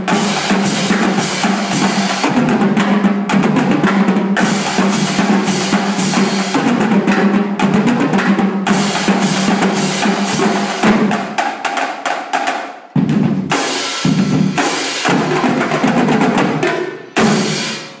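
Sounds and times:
marching drumline playing: 0:00.0 - 0:17.9.

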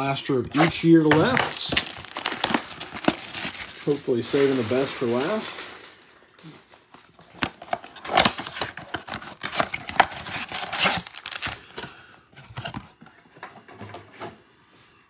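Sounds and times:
foil packs rustling: 0:00.5 - 0:11.9
cardboard box ripping and crinkling: 0:00.6 - 0:06.0, 0:07.6 - 0:11.6.

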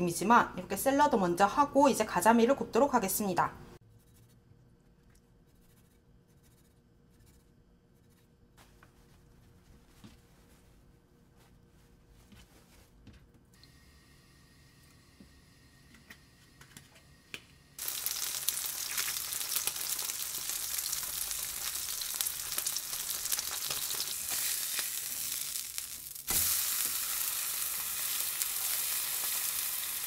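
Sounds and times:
fish sizzling in a pan: 0:17.8 - 0:30.0.

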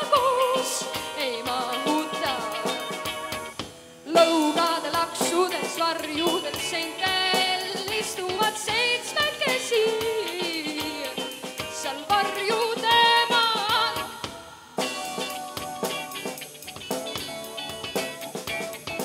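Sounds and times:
woman singing: 0:00.0 - 0:03.2, 0:04.1 - 0:14.9
rock band playing: 0:00.0 - 0:19.0.

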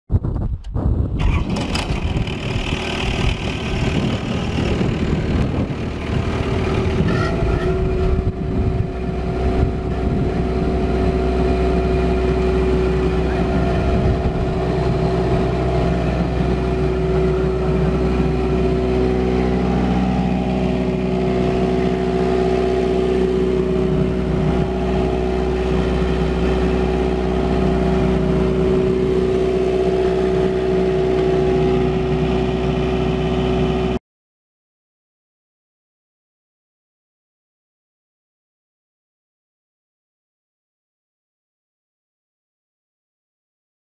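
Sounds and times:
diesel generator humming: 0:01.2 - 0:34.0.

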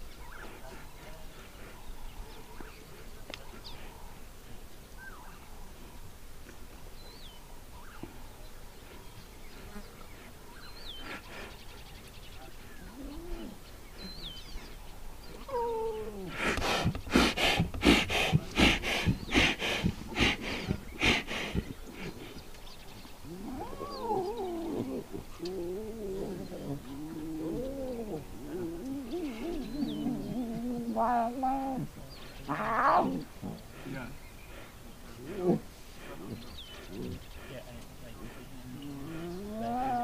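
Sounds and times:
lion snarls and growls: 0:23.2 - 0:34.2, 0:35.1 - 0:40.0.

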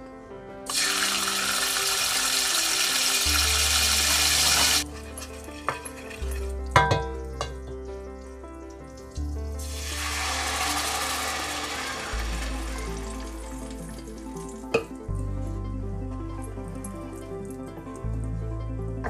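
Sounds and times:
background music: 0:00.0 - 0:19.0
fish sizzling in hot oil: 0:00.7 - 0:07.4, 0:08.2 - 0:14.8
wooden spoon knocking on pan: 0:06.8 - 0:07.8.

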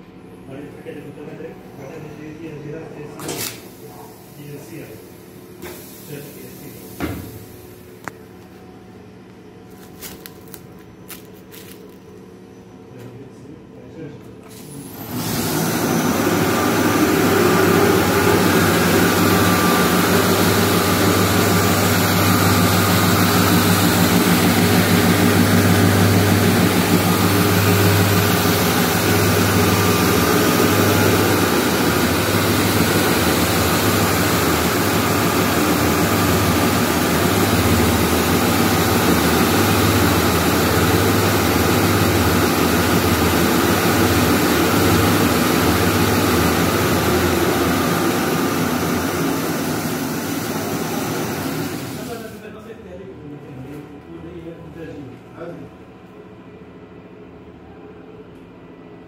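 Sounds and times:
winding machine humming: 0:14.7 - 0:52.4.

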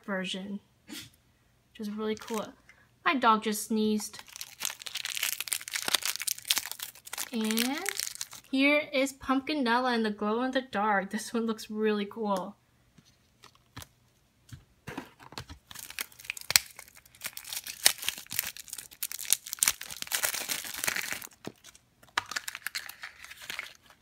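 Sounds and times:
plastic wrapper crinkling: 0:02.1 - 0:02.5, 0:04.2 - 0:08.6, 0:15.4 - 0:24.0.

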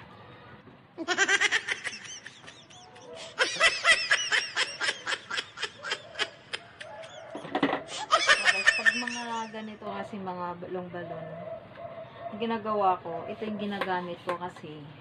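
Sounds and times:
high-pitched snickering laughter: 0:01.0 - 0:09.5.

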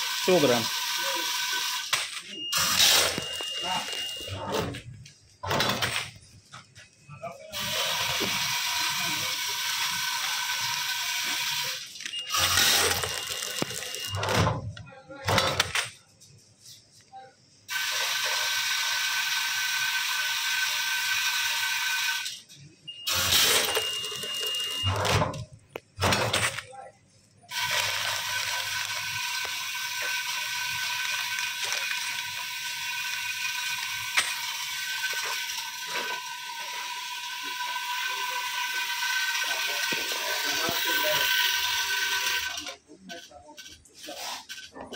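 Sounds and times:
packing machine humming: 0:00.0 - 0:06.2, 0:07.6 - 0:14.6, 0:27.5 - 0:42.6.

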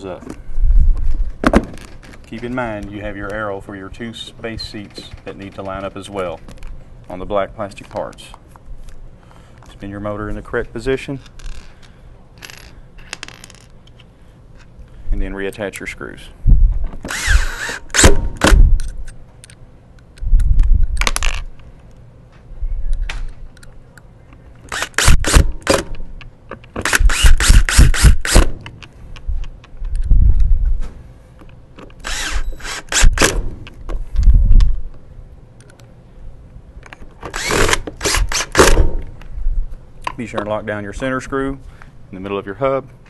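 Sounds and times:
cordless drill running: 0:17.1 - 0:18.2, 0:26.8 - 0:28.4, 0:32.0 - 0:33.3, 0:37.3 - 0:38.7.

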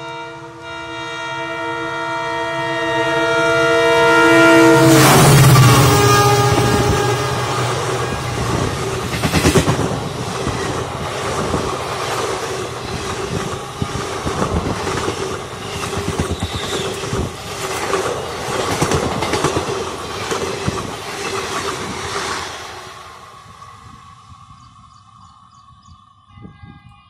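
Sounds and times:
train wheels clattering: 0:05.2 - 0:22.6.

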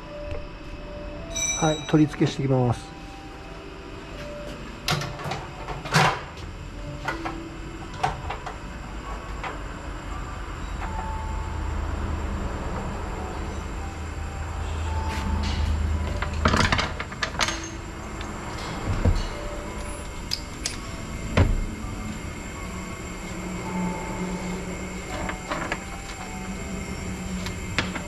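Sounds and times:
low steady hum: 0:00.0 - 0:28.0
metal parts and tools clicking: 0:16.2 - 0:18.3.

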